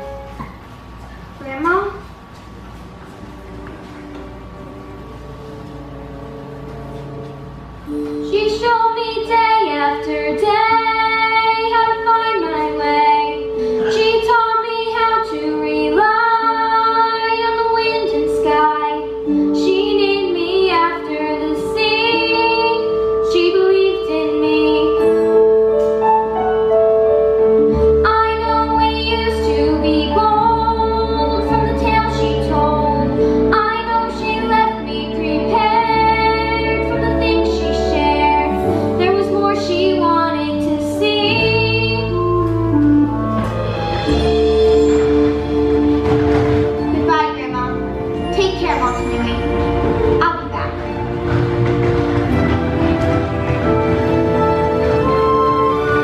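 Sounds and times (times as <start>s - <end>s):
woman singing: 8.2s - 25.2s, 28.0s - 42.5s.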